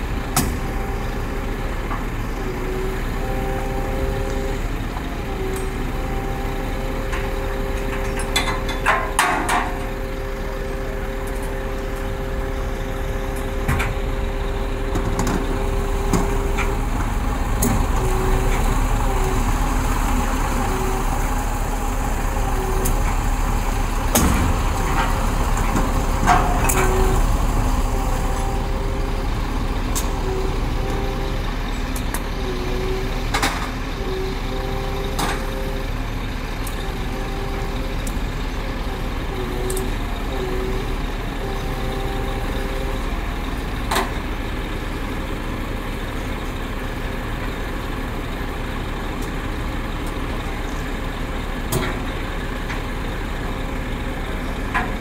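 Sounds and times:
diesel trucks idling: 0.0 - 55.0
steady whine: 0.0 - 55.0
metallic clanks: 7.2 - 10.0.

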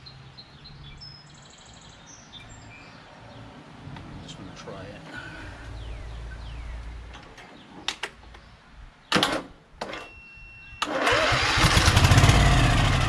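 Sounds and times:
short beep: 10.0 - 10.9
engine cranking on starter: 10.8 - 13.0.

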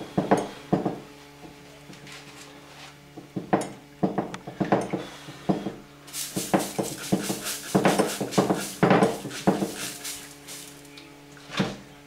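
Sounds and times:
rushing hiss: 6.1 - 10.9.

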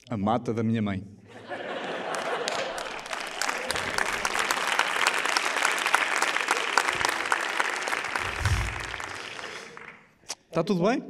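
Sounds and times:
audience applauding: 1.6 - 10.2.

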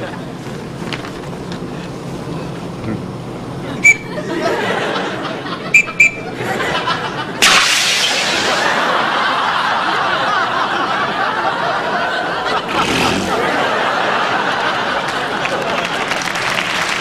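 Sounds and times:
short high whistle peeps: 3.8 - 4.1, 5.8 - 6.3
studio audience laughing: 4.1 - 7.4, 8.2 - 17.0.

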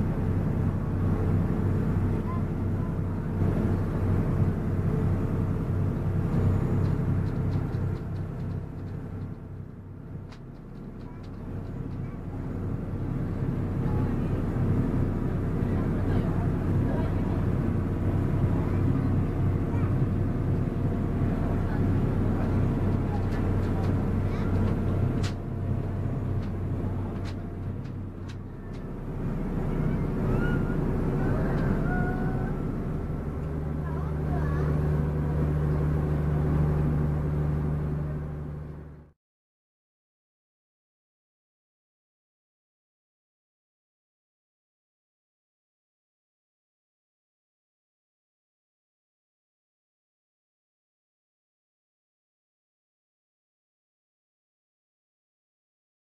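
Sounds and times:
boat engine droning: 0.0 - 39.2
wind: 0.0 - 39.2.

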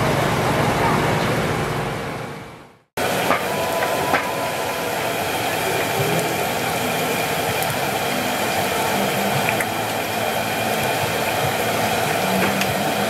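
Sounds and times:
deep-frying sizzle in oil: 3.0 - 13.0.

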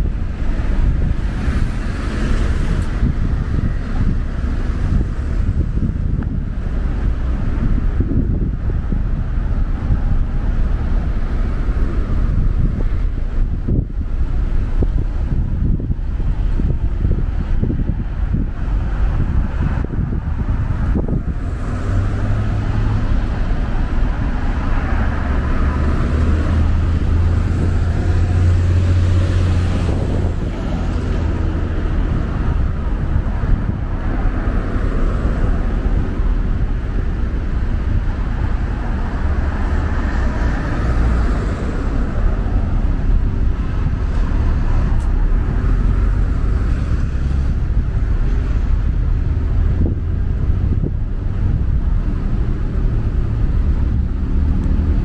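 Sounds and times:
traffic rumble: 0.0 - 55.0
car passing close by: 20.9 - 32.9.

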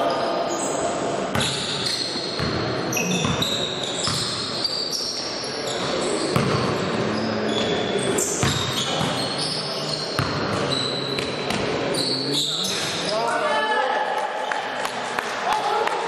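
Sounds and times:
sneakers squeaking on court floor: 0.0 - 13.3
ball bouncing: 6.4 - 6.6.

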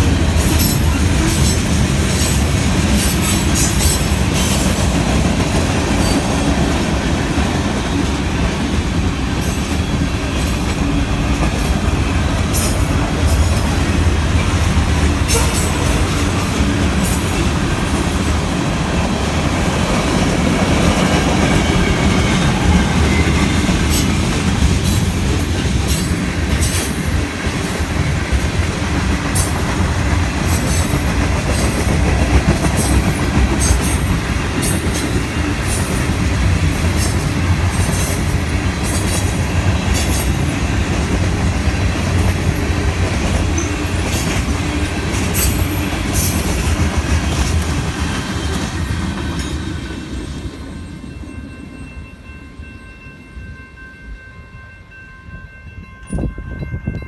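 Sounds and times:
train wheels rumbling on rail: 0.0 - 53.8.

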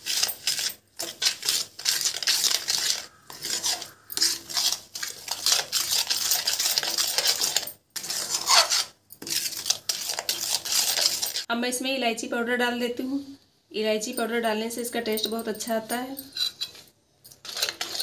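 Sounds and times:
steel spoon scraping metal pan: 0.0 - 11.5, 15.2 - 18.0.

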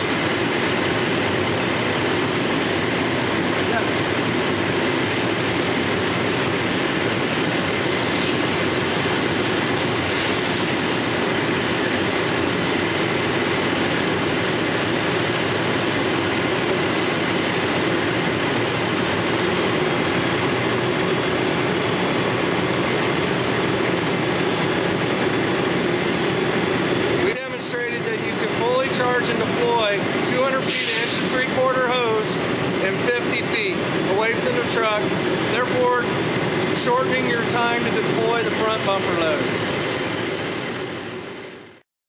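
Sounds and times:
pump engine rumbling: 0.0 - 41.8
hose water hiss: 8.2 - 11.2, 30.6 - 31.3.

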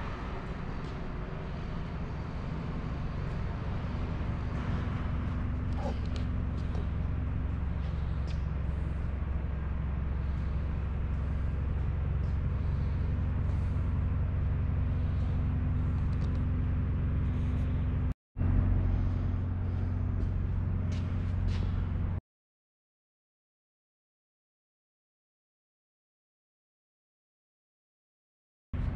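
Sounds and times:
low machine hum: 0.0 - 22.2.

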